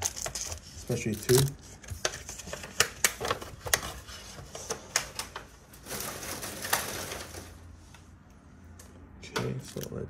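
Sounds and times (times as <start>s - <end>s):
card packs rustling: 2.8s - 7.7s.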